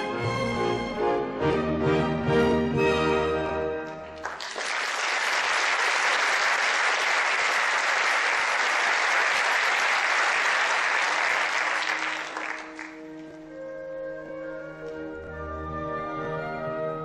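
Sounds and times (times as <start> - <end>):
orchestra playing softly: 0.0 - 4.6, 9.5 - 17.0
audience applauding: 4.2 - 13.2.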